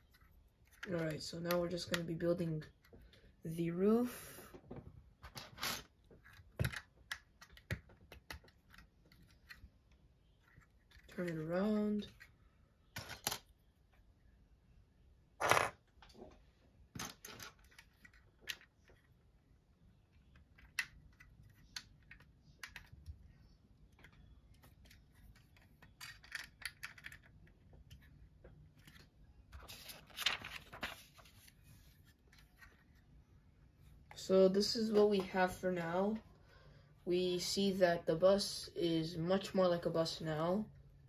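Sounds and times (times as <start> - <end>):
plastic bricks clicking: 25.8 - 27.4.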